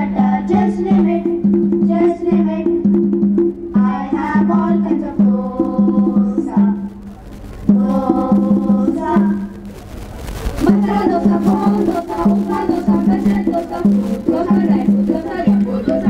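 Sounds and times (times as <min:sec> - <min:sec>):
voices: 0:03.8 - 0:16.0
wood block percussion clicks: 0:05.2 - 0:16.0.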